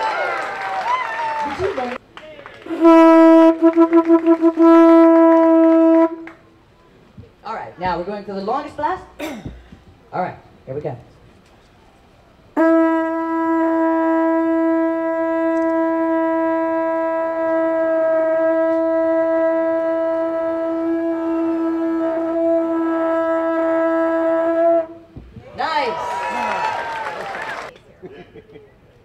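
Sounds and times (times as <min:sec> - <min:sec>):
conch shell blast: 0:02.7 - 0:06.4, 0:12.6 - 0:25.4.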